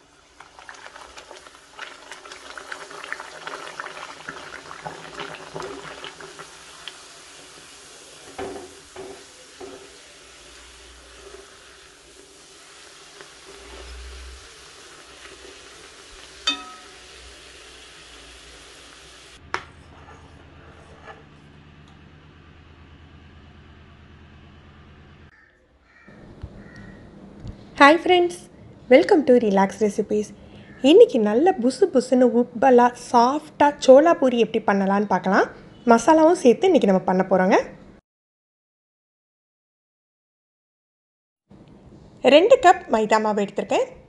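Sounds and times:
dough sizzling in hot oil: 0.0 - 19.4
metal spoon knocking a pan: 16.4 - 17.0.

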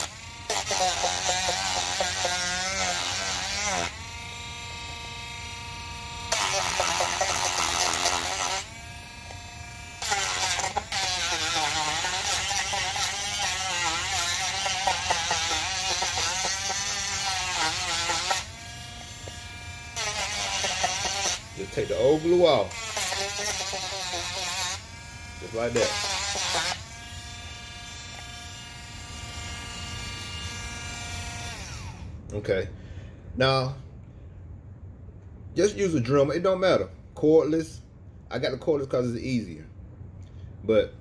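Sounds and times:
rotary tool grinding: 0.0 - 32.1.

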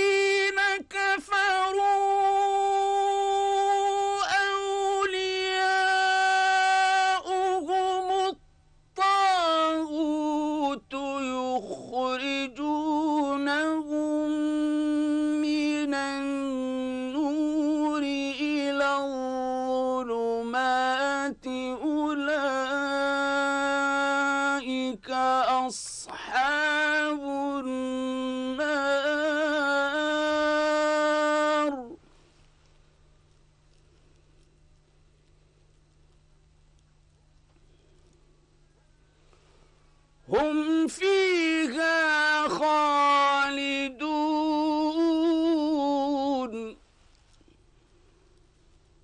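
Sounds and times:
man chanting melodically: 0.0 - 32.0, 40.2 - 46.8
man reciting in long sung notes: 0.0 - 32.2, 40.2 - 46.9.

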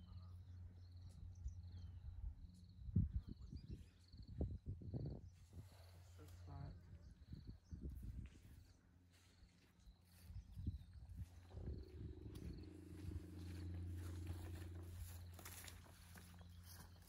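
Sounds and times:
elephant rumbling: 11.2 - 17.0.

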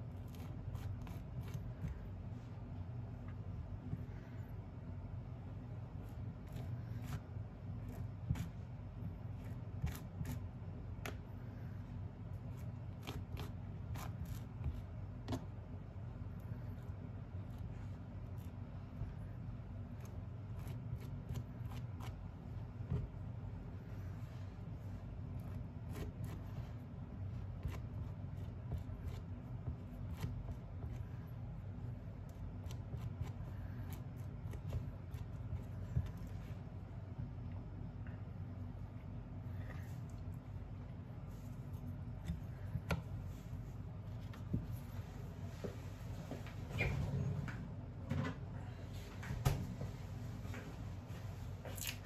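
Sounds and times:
knife scraping butter on bread: 0.0 - 2.0, 6.2 - 10.6, 12.4 - 14.9.

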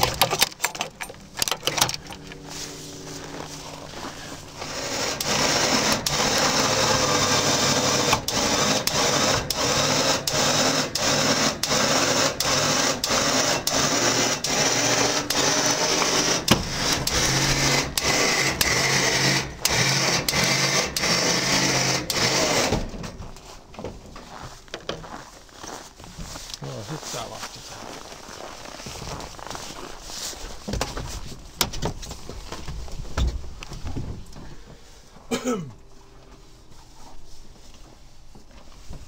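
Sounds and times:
electric winch running: 0.0 - 23.1.

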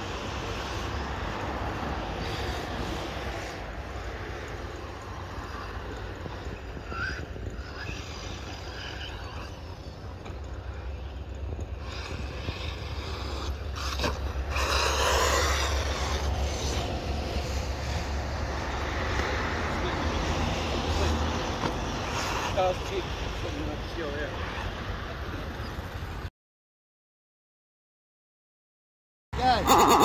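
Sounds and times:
rc car motor rising and falling: 11.5 - 18.1.

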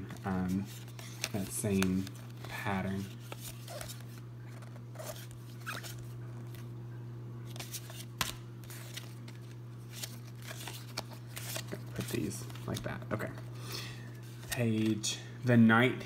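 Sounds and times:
steady low hum: 0.0 - 16.0
cards sliding and flipping: 0.1 - 6.6, 7.5 - 13.0.

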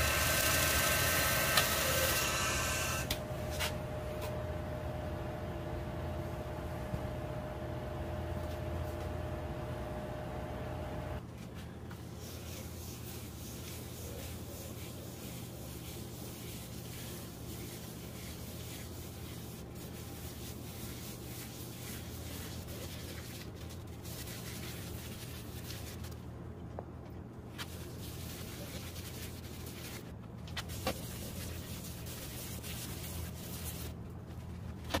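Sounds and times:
wood lathe motor hum: 0.0 - 3.1.

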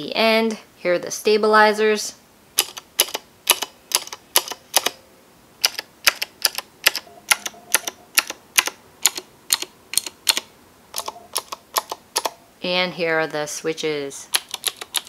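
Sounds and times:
mechanical keyboard key clacks: 5.6 - 10.4, 14.3 - 15.0.

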